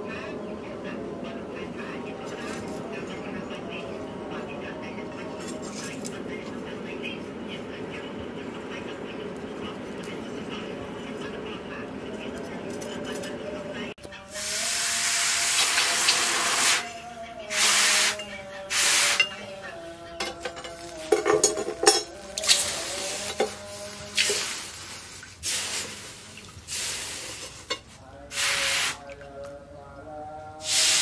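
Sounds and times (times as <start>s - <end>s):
hot metal hissing in water: 14.3s - 16.9s, 17.5s - 19.4s, 22.4s - 29.0s, 30.6s - 31.0s
water sloshing: 18.2s - 26.7s.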